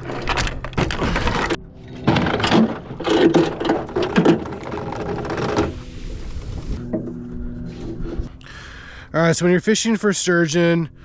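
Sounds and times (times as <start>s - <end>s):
anchor chain rattling over metal roller: 0.0s - 5.7s.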